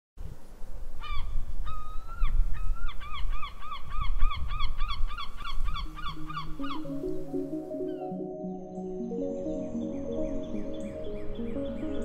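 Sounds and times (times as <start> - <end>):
gull calling: 2.7 - 8.2.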